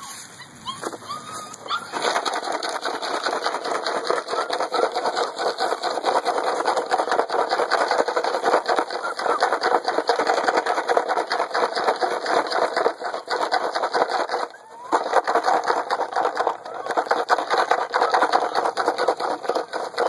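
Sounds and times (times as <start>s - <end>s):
rustle of dry leaves and cloth: 0.0s - 2.0s.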